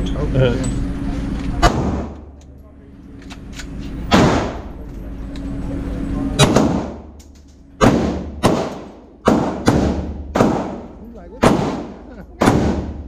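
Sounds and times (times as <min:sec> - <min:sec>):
handgun shots echoing indoors: 0:01.6 - 0:02.2, 0:04.1 - 0:04.6, 0:06.4 - 0:07.1, 0:07.8 - 0:13.0.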